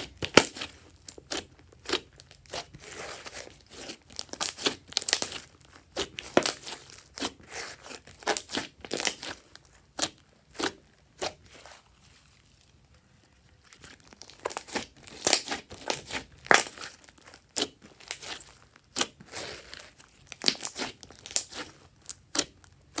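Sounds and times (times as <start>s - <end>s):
slime squeezed with sticky pops: 13.9s - 23.0s.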